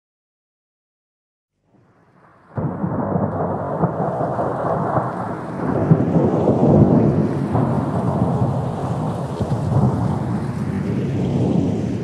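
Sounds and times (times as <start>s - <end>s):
heavy rain: 2.4s - 12.0s
rumbling thunder: 2.4s - 12.0s.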